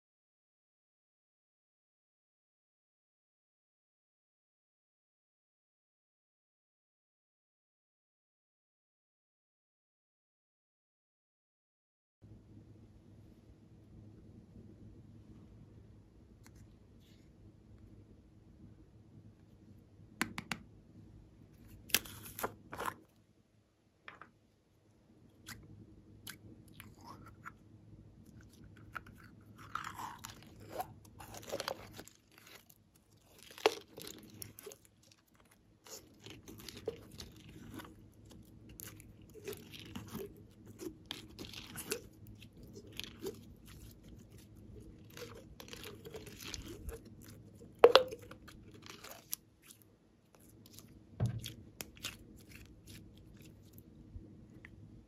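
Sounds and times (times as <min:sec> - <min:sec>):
slime squelching and crackling: 0:28.2 - 0:53.9.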